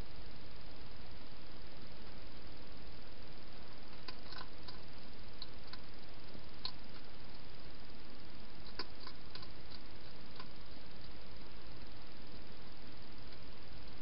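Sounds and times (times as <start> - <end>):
steady hiss: 0.0 - 14.0
hedgehog chewing food: 3.9 - 5.9, 6.5 - 7.5, 8.6 - 11.2.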